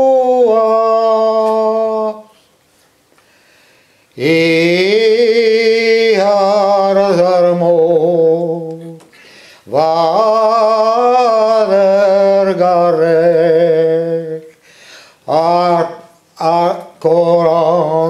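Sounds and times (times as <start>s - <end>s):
man singing unaccompanied: 0.0s - 2.4s, 4.1s - 14.6s, 15.2s - 18.0s
breath: 3.1s - 4.2s, 9.1s - 9.7s, 14.5s - 15.2s.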